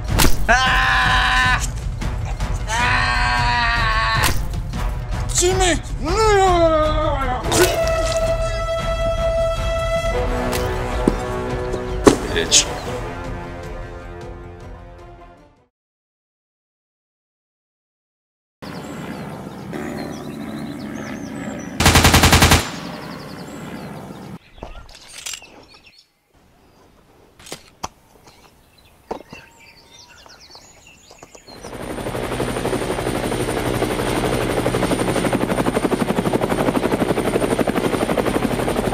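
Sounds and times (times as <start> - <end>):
helicopter drone with high whine: 5.9 - 12.7, 18.6 - 24.4, 31.5 - 38.9
automatic gunfire burst: 21.8 - 22.9.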